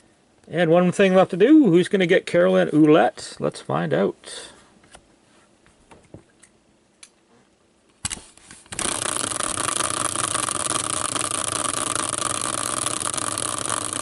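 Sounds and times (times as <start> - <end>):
caster wheel spinning whirr: 8.7 - 14.0.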